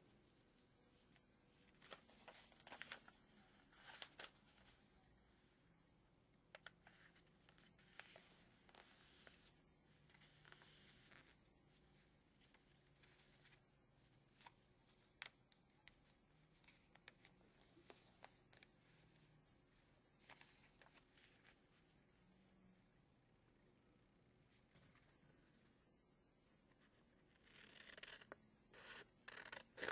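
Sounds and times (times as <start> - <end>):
paper rustling being folded: 1.7 - 4.8, 15.2 - 21.8.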